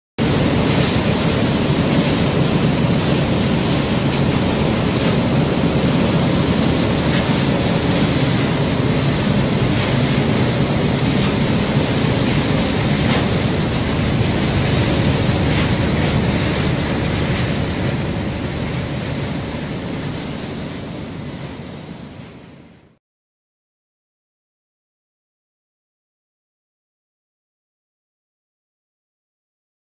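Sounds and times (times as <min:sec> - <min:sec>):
oscillating screens and conveyors running: 0:01.0 - 0:20.6.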